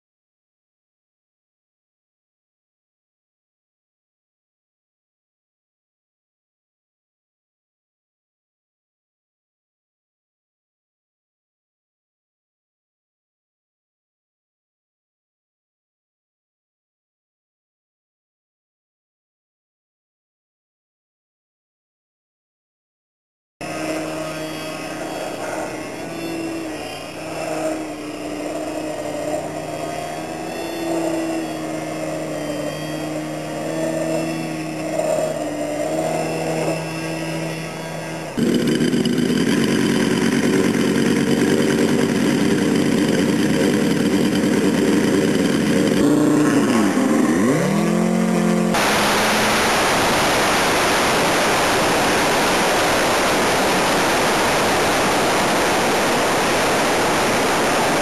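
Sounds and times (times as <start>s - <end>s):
model airplane engine: 23.6s - 58.0s.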